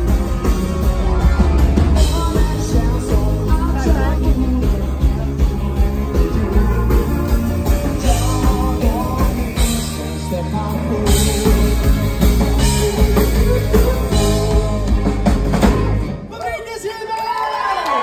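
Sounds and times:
electric guitar: 0.0s - 16.3s
keyboards: 0.0s - 16.3s
bass: 0.0s - 16.4s
drums: 0.0s - 16.8s
lead vocal singing: 1.9s - 16.0s.

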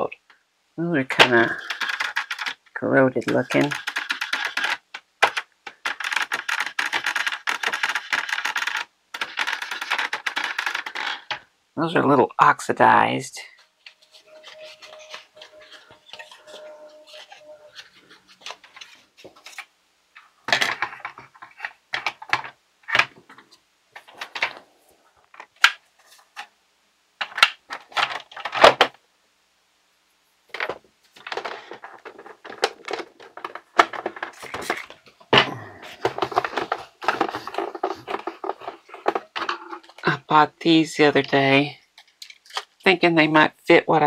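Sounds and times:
plastic parts knocking and clattering: 1.1s - 11.5s, 20.2s - 24.7s, 27.2s - 29.0s, 30.5s - 40.2s, 41.2s - 42.8s
rubbing plastic: 1.2s - 11.5s, 13.6s - 26.5s, 30.6s - 40.2s.

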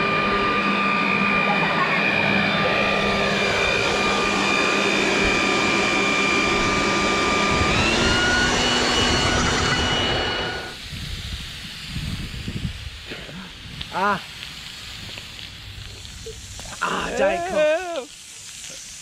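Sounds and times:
electric leaf blower whining: 0.0s - 10.8s.

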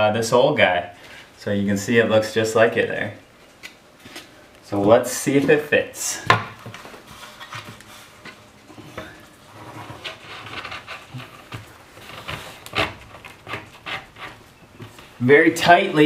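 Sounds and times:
wood scraping and knocking: 6.2s - 16.0s.

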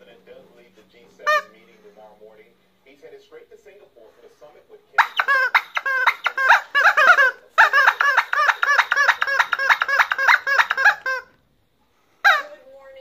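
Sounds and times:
rubber chicken squawking: 1.2s - 1.6s, 5.0s - 11.4s, 12.2s - 12.6s.

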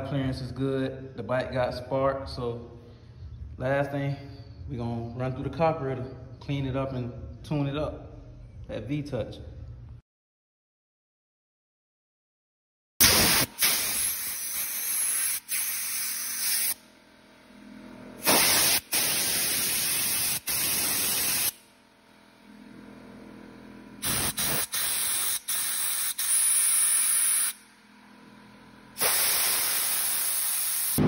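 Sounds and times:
compressed air hissing blasts: 13.0s - 16.8s, 18.2s - 21.6s, 24.0s - 27.6s, 29.0s - 31.0s.

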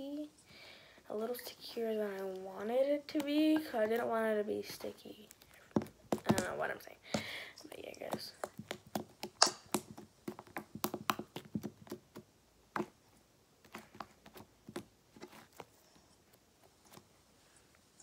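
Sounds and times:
slime sticky clicks and pops: 9.2s - 9.9s.

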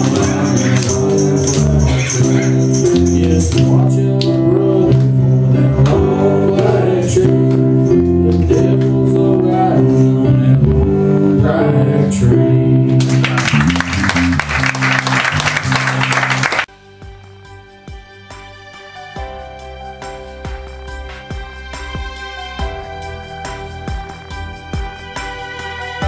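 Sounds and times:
man singing into microphone: 0.0s - 13.2s
instrumental backing music: 0.0s - 26.0s
congregation applauding: 13.0s - 16.7s.

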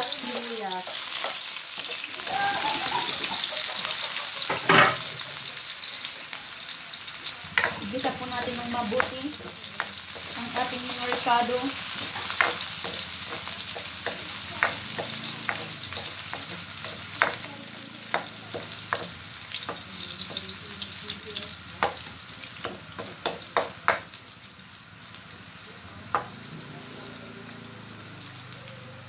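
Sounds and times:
garlic sizzling in hot oil: 0.0s - 29.0s
ladle scraping and tapping wok: 8.8s - 17.5s.

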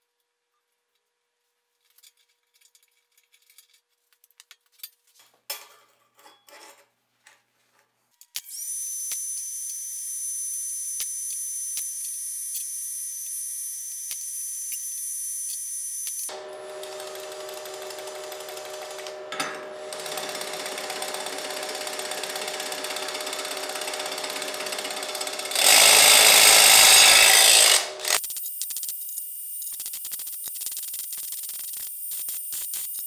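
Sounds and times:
cordless drill whine: 8.5s - 28.2s.

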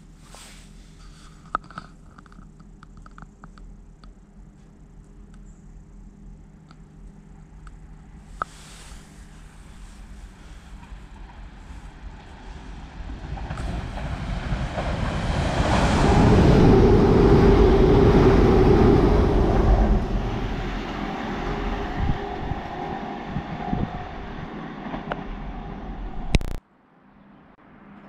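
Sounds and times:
faint steady whine: 0.0s - 12.6s
passenger train rumbling past: 8.1s - 26.6s.

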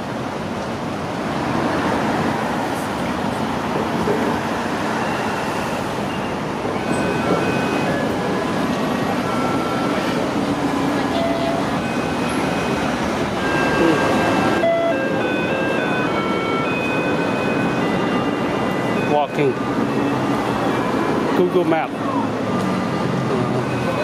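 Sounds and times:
city road traffic: 0.0s - 24.0s
people's voices: 13.4s - 14.5s.

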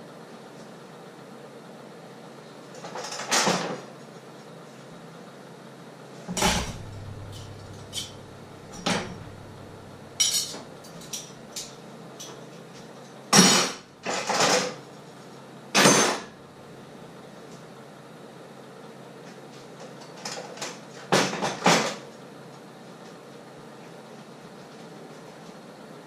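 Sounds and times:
kitchenware clattering: 6.3s - 11.3s.

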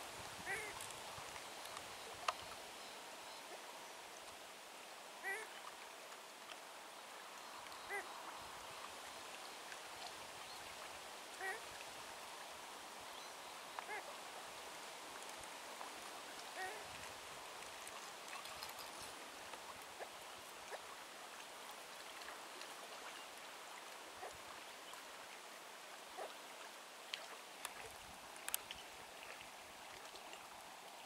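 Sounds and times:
steady hiss: 0.0s - 31.0s
grouse calling: 0.4s - 0.9s, 7.9s - 8.1s.

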